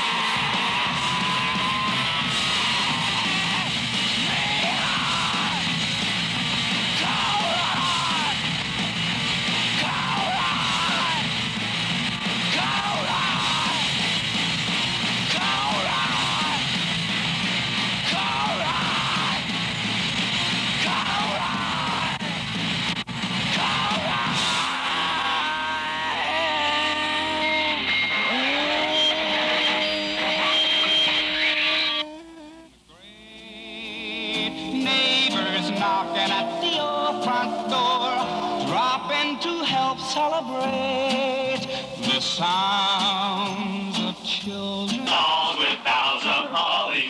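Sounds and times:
rock song with shouted vocals: 0.0 - 33.3, 34.0 - 47.0.

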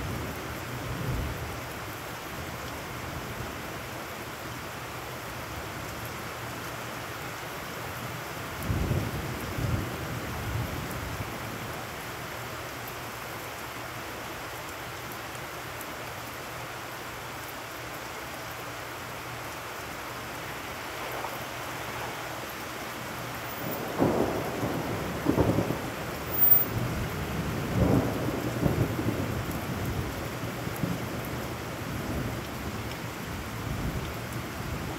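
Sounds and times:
rain falling on puddles: 0.0 - 34.9
thunder rumbling: 20.3 - 31.2.

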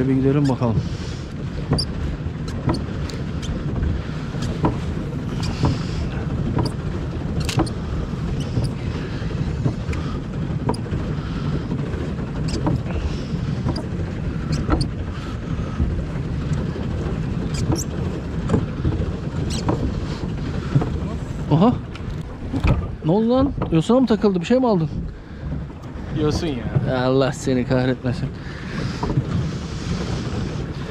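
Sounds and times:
water rushing: 0.0 - 30.9
light clicks and knocks: 1.6 - 6.8, 12.5 - 12.9, 13.6 - 13.9, 14.5 - 15.0, 16.5 - 20.0, 21.9 - 24.0
wind on microphone: 24.8 - 30.9.

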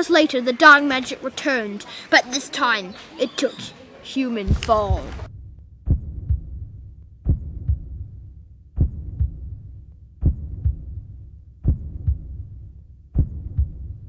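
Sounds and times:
heartbeat thumps: 4.4 - 14.0
low rumble: 4.5 - 14.0.

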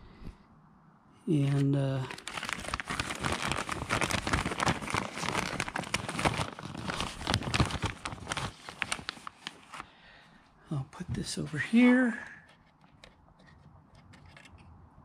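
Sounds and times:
plastic bag crinkling: 1.5 - 9.8.

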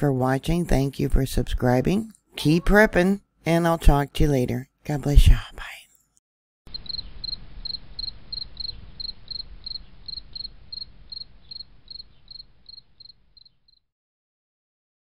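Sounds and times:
cricket chirping: 6.7 - 13.8.

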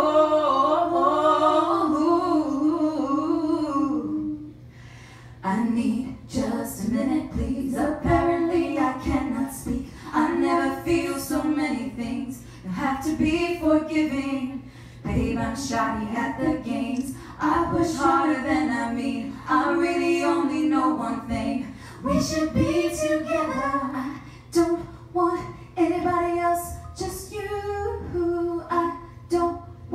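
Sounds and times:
singer breathing: 4.6 - 5.4, 14.6 - 15.1, 21.7 - 22.0
woman singing unaccompanied: 5.4 - 29.9.

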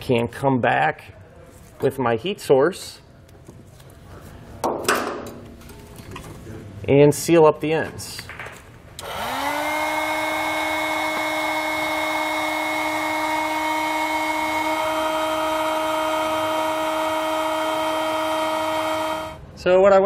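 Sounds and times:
heat gun fan whine: 8.9 - 19.6.

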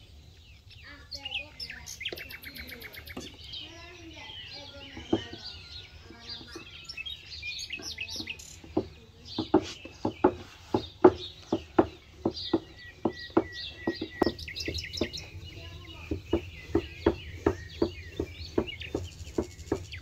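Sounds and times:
small birds chirping: 0.0 - 20.0
rolling pin knocking on board: 16.0 - 19.9.

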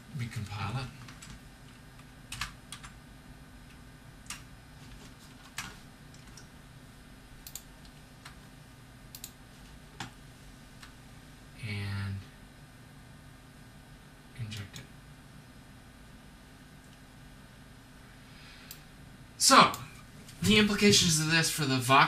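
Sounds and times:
faint steady hum: 0.0 - 22.0
computer keyboard clicks: 2.3 - 3.0, 5.4 - 6.5, 7.4 - 8.4, 9.1 - 9.4.

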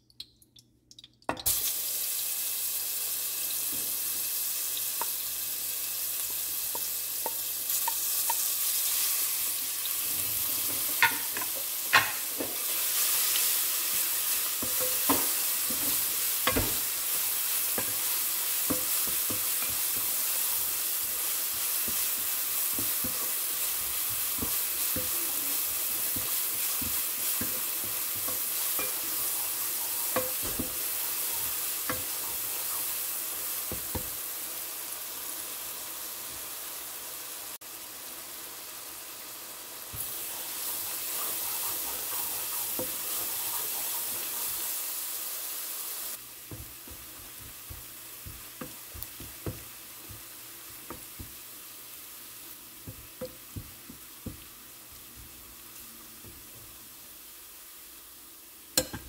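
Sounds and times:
garlic sizzling in oil: 1.4 - 59.0
wooden spatula knocking and scraping: 10.4 - 12.7, 13.9 - 33.0, 40.0 - 44.8, 46.4 - 51.5, 52.8 - 55.6.

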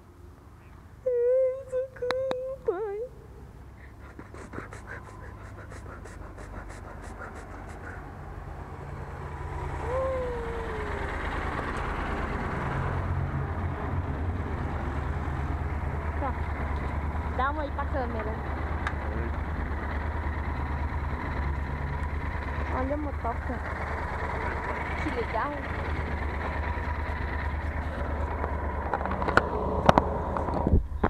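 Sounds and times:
motorcycle approaching: 0.0 - 31.0
road noise: 0.0 - 31.0
person humming: 1.0 - 3.3, 4.1 - 8.1, 9.8 - 11.1.

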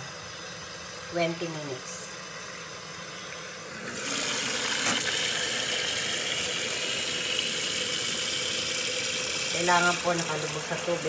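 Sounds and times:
tap water pouring into pot: 2.4 - 11.0.

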